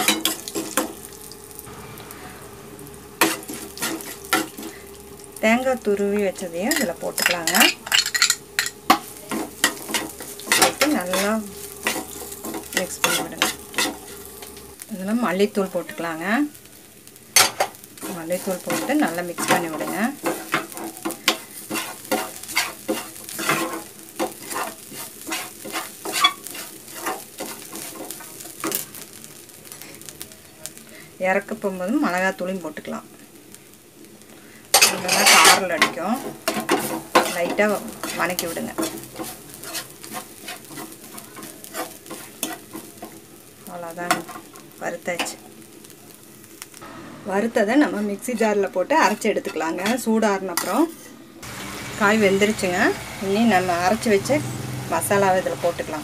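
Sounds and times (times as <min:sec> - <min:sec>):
steel spoon scraping a pan: 0:00.0 - 0:01.1, 0:01.7 - 0:05.0, 0:06.6 - 0:14.7, 0:17.4 - 0:28.8, 0:34.7 - 0:43.2, 0:44.1 - 0:45.4, 0:47.8 - 0:51.1
faint sizzling: 0:00.0 - 0:56.0.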